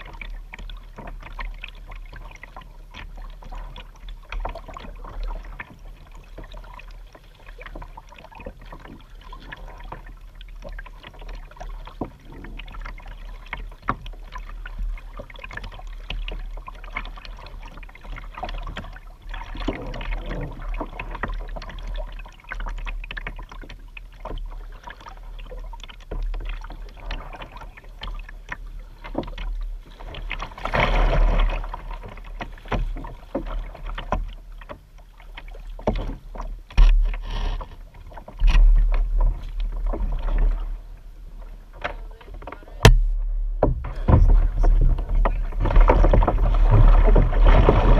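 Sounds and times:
paddle splashing in water: 0:00.0 - 0:47.9
water lapping against hull: 0:00.0 - 0:47.9
steady low rumble: 0:42.7 - 0:47.9.

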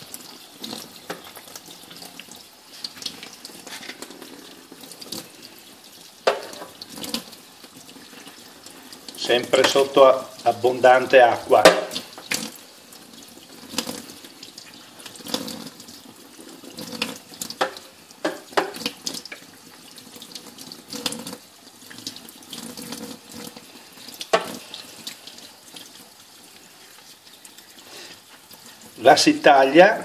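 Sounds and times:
tap running into metal sink: 0:06.2 - 0:07.2, 0:09.4 - 0:10.0, 0:11.5 - 0:12.5, 0:16.9 - 0:19.5, 0:24.2 - 0:24.6.

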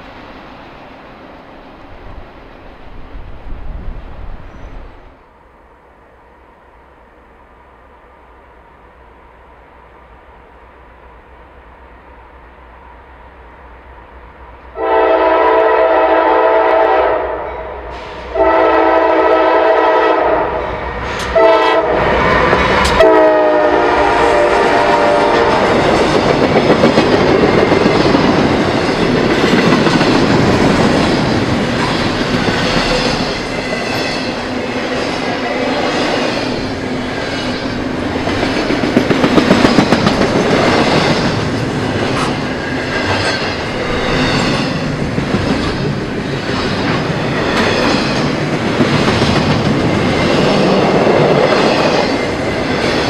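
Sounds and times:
freight train rumbling past: 0:00.0 - 0:53.0
locomotive air horn blasts: 0:14.8 - 0:20.6, 0:21.3 - 0:22.1, 0:23.0 - 0:25.6
wheels clattering on rails: 0:25.1 - 0:53.0.

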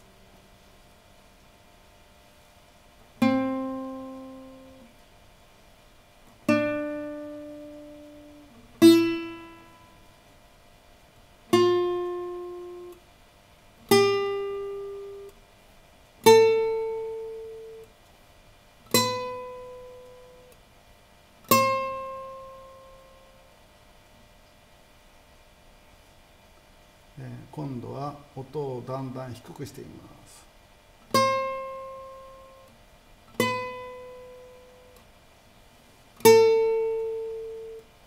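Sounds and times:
guitar single notes plucked: 0:03.2 - 0:04.9, 0:06.5 - 0:10.1, 0:11.5 - 0:13.0, 0:13.9 - 0:15.4, 0:16.2 - 0:17.9, 0:18.9 - 0:20.6, 0:21.5 - 0:23.4, 0:31.1 - 0:35.1, 0:36.2 - 0:37.9.

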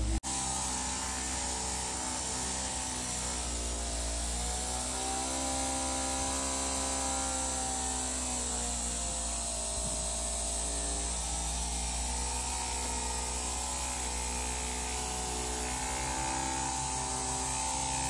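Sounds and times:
electric massager motor hum: 0:00.0 - 0:18.0.

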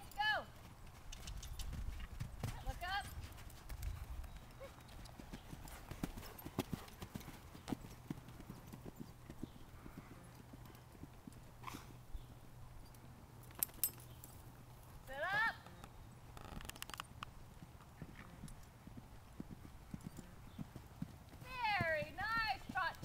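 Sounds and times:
horse hoofbeats on sand: 0:00.4 - 0:11.7, 0:17.6 - 0:23.0
sharp clicks: 0:01.1 - 0:01.7, 0:15.6 - 0:17.3.

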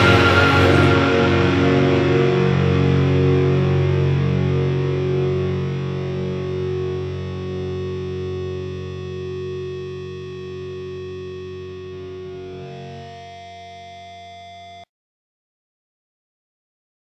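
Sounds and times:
distorted electric guitar chord: 0:00.0 - 0:14.8.

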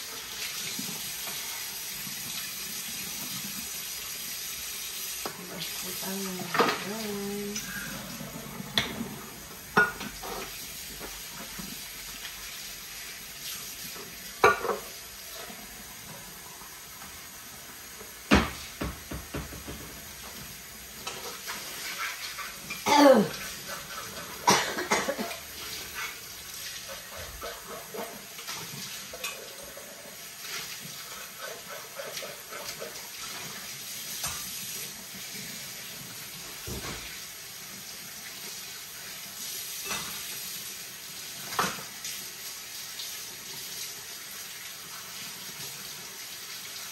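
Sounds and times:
running water: 0:00.0 - 0:46.9
kitchenware clattering: 0:08.6 - 0:11.5, 0:14.4 - 0:15.0, 0:39.8 - 0:40.4.

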